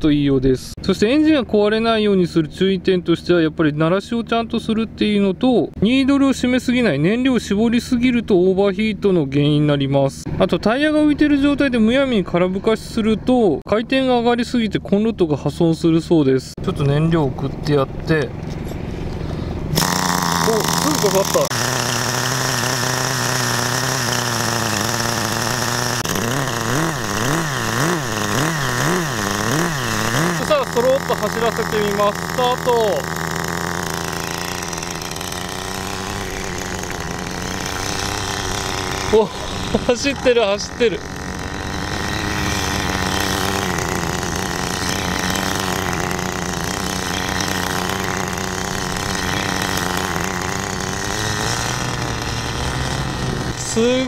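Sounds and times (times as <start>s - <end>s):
small glow engine buzzing: 18.4s - 54.0s.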